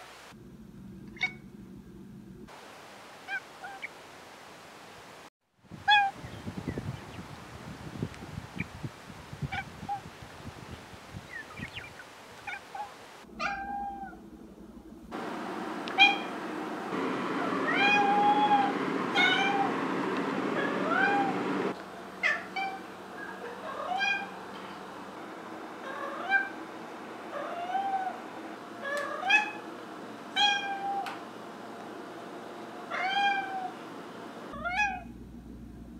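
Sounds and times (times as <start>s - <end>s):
cat meowing: 13.4s - 14.2s, 16.0s - 16.3s, 17.7s - 19.7s, 20.8s - 21.3s, 23.6s - 24.3s, 27.4s - 28.2s, 28.8s - 29.6s, 30.4s - 31.1s, 32.9s - 33.7s, 34.5s - 35.1s.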